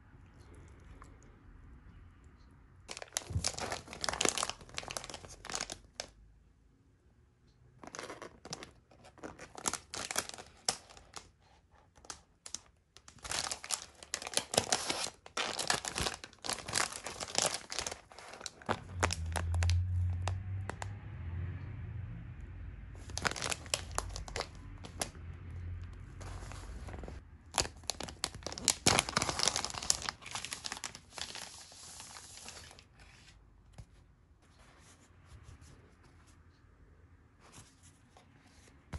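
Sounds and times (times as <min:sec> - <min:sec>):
plastic wrapper crinkling and tearing: 0:02.9 - 0:06.2, 0:07.8 - 0:20.8, 0:23.0 - 0:25.2, 0:26.2 - 0:32.9
low rumble: 0:18.7 - 0:27.2.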